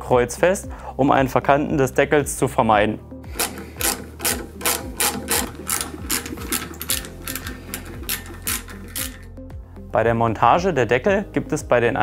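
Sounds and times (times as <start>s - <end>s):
background music: 0.0s - 12.0s
sharp ticking beat: 3.3s - 9.2s.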